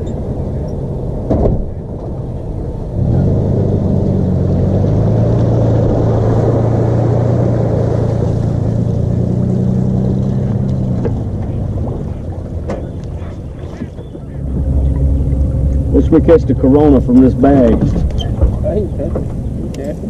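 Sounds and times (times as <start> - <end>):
water churning: 4.2 - 20.0
outboard motor idling: 7.3 - 20.0.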